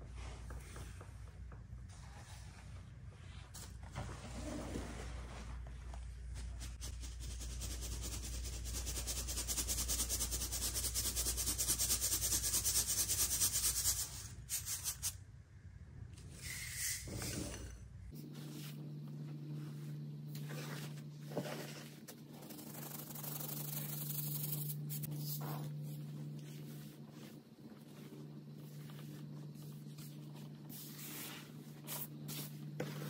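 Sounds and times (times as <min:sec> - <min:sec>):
soft scrapes and rustles: 0:01.9 - 0:06.8, 0:18.1 - 0:23.2, 0:25.0 - 0:33.0.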